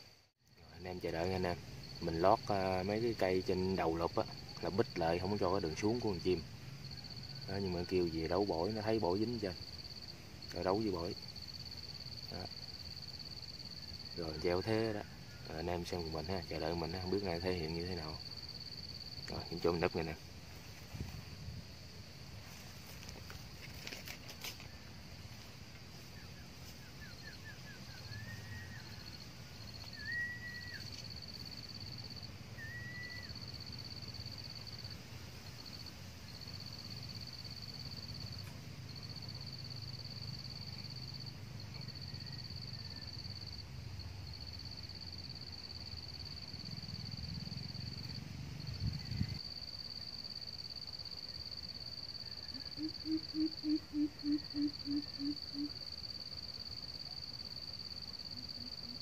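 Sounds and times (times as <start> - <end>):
high insect drone: 0.0 - 59.0
bird giving deep hoots: 52.5 - 55.8.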